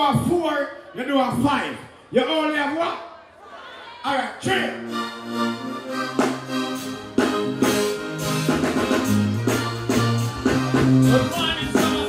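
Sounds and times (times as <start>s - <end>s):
bass line: 4.6s - 12.0s
live band playing: 4.6s - 12.0s.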